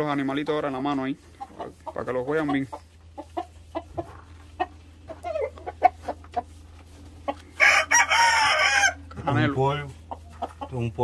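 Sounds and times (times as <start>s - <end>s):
rooster crowing: 7.6s - 9.1s.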